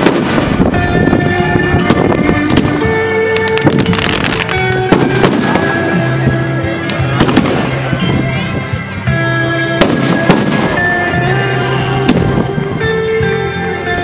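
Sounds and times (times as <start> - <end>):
music with long held notes: 0.0 - 14.0
firework shells bursting: 1.8 - 5.7.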